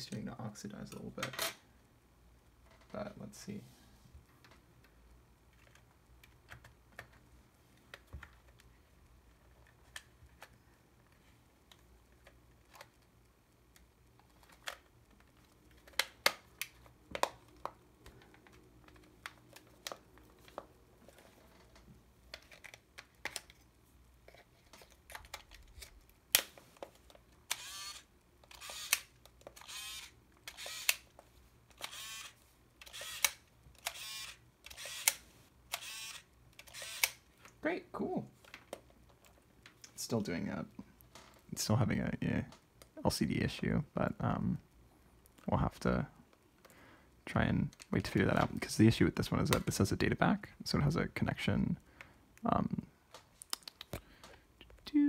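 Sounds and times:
camera lens motor whirring: 0:27.5 - 0:31.1, 0:31.8 - 0:37.2
camera plastic clicks and snaps: 0:27.5 - 0:31.1, 0:31.7 - 0:37.2.

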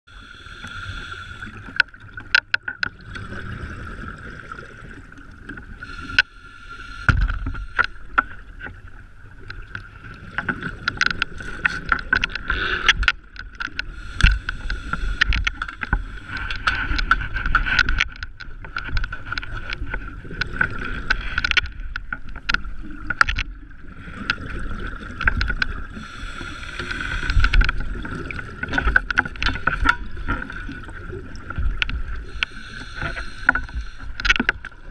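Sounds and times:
diver breathing through regulator: 0:00.1 - 0:01.8, 0:05.8 - 0:08.2, 0:13.8 - 0:17.0, 0:25.9 - 0:28.0, 0:32.2 - 0:34.5
exhaled bubbles rushing: 0:03.0 - 0:05.5.

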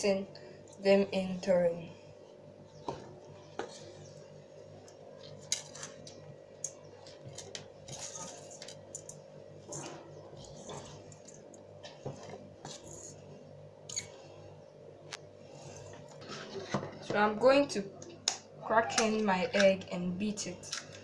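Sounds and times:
faint steady hum: 0:00.0 - 0:21.0
ladle scraping a bowl: 0:15.6 - 0:17.0.

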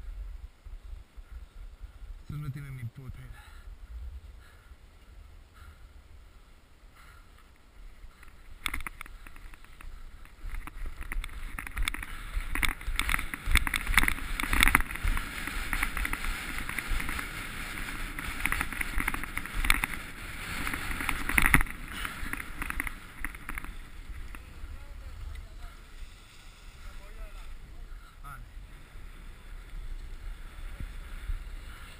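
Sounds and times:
wind rumbling on microphone: 0:00.0 - 0:31.9
skis scraping over snow: 0:07.9 - 0:31.9.

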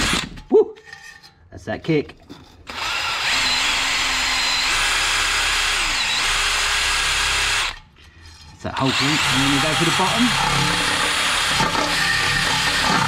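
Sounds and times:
drill motor whine: 0:02.7 - 0:07.8, 0:08.8 - 0:13.0.

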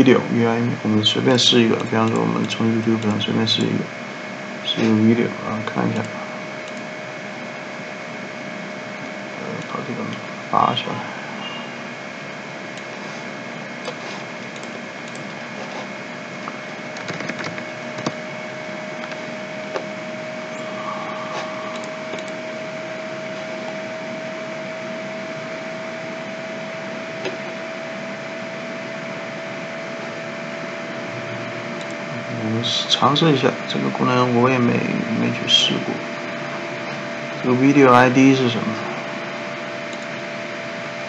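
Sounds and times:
faint steady hum: 0:00.0 - 0:41.0
computer clicks: 0:13.8 - 0:15.4, 0:17.0 - 0:18.2.

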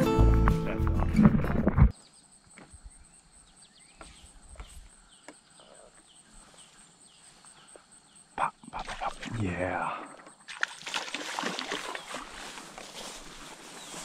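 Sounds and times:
background music: 0:00.0 - 0:01.9
insect chirps: 0:01.9 - 0:14.0.

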